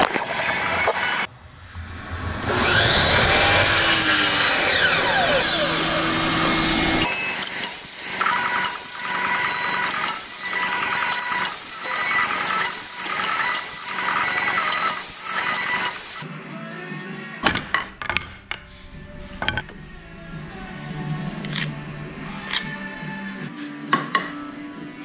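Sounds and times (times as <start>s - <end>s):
miter saw cutting wood: 0.0s - 1.3s, 2.4s - 16.2s
background music with steady beat: 16.2s - 25.0s.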